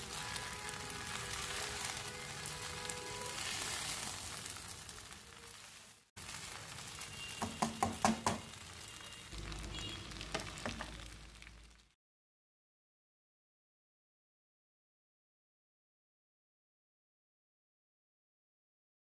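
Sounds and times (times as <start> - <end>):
noodles sizzling in a wok: 0.0 - 12.0
utensil knocking against pan: 7.4 - 8.5.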